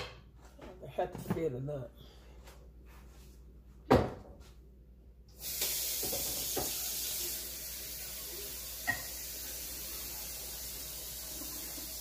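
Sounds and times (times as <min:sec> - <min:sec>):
tap water running: 0:05.3 - 0:12.0.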